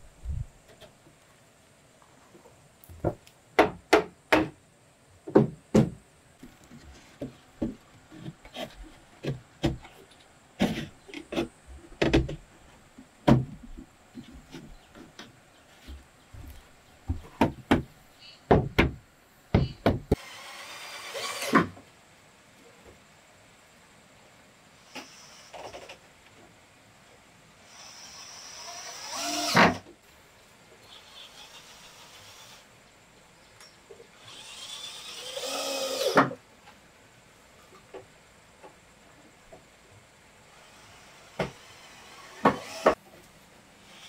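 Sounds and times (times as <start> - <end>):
wood scraping: 6.4 - 17.5.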